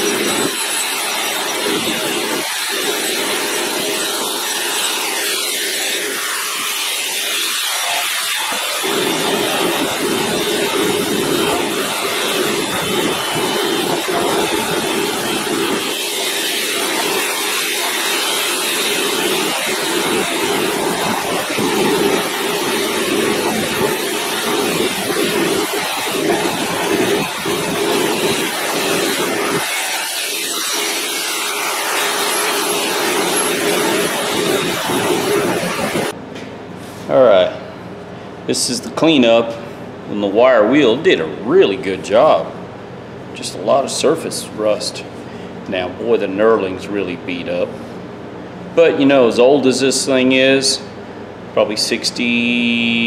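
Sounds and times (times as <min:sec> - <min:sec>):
wire wheel scratching steel: 0:00.0 - 0:36.2.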